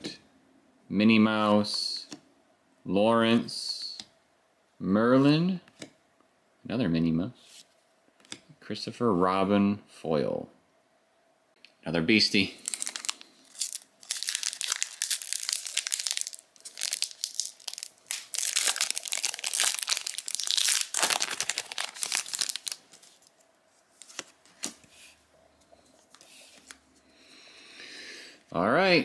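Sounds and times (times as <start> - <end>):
wrapper crinkling and tearing: 12.6 - 23.4.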